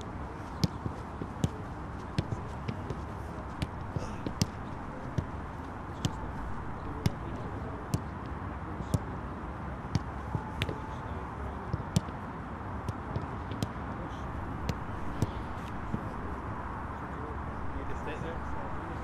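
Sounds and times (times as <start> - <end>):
low outdoor background noise: 0.0 - 19.0
footballs being kicked: 0.4 - 9.1, 9.9 - 11.0, 11.6 - 12.2, 12.8 - 16.3.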